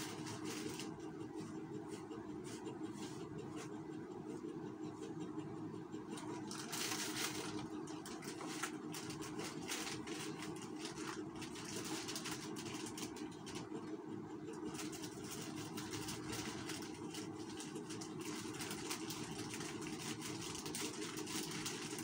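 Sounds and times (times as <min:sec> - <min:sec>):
plastic crinkling and rustling: 0:00.0 - 0:01.0, 0:06.2 - 0:13.7, 0:14.6 - 0:22.0
low mechanical hum: 0:00.0 - 0:22.0.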